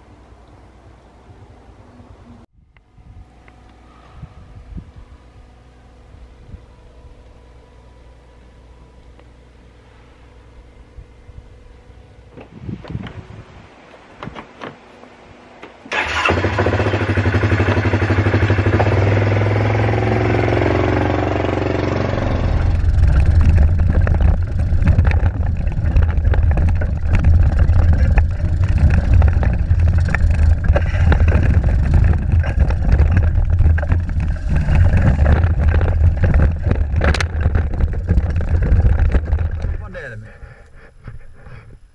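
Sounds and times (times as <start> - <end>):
engine starting: 15.9 - 18.9
engine idling: 15.9 - 41.6
engine running under load: 15.9 - 41.7.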